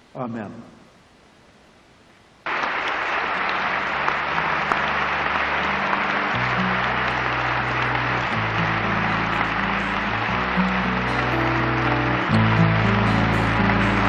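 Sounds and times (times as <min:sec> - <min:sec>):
audience applause: 0:02.4 - 0:14.0
sustained music chords: 0:03.7 - 0:14.0.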